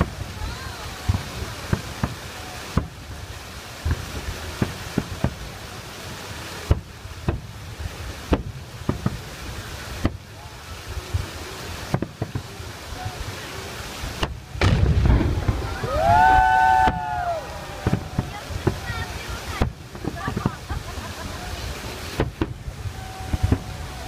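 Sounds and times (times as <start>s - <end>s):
fireworks bangs and cracks: 0.0s - 24.0s
hiss of firework fountains: 0.0s - 24.0s
low rumble: 14.6s - 18.8s
person shouting a long call: 15.6s - 18.6s.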